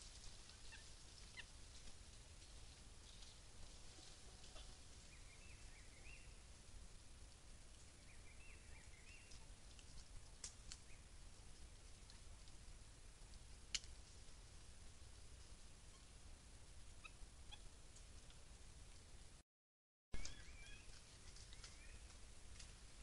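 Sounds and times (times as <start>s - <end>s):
faint outdoor hiss: 0.0s - 19.4s, 20.2s - 23.0s
faint high chirps: 20.2s - 21.0s.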